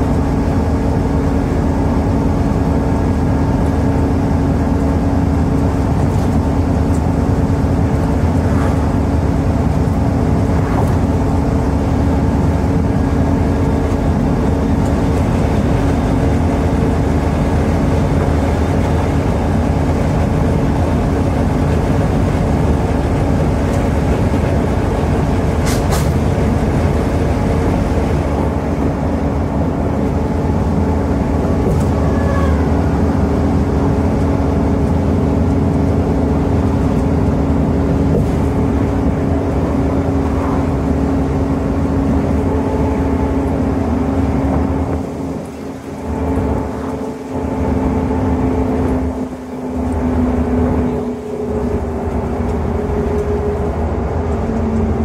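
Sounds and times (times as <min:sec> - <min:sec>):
bus diesel engine droning: 0:00.0 - 0:55.0
tyre and road noise: 0:00.0 - 0:55.0.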